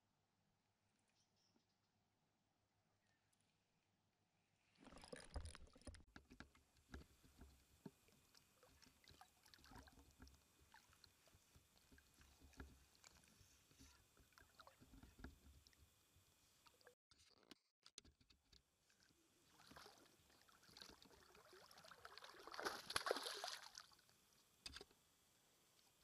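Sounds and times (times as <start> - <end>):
water lapping and splashing: 4.8 - 6.1, 6.9 - 15.8, 19.4 - 24.0.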